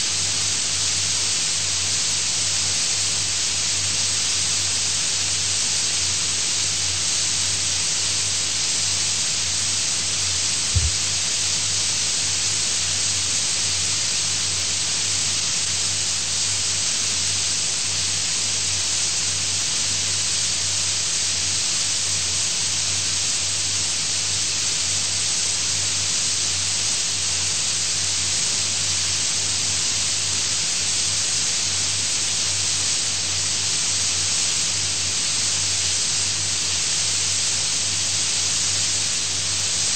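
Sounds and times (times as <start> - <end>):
recording hiss: 0.0 - 39.9
short thump: 10.8 - 11.0.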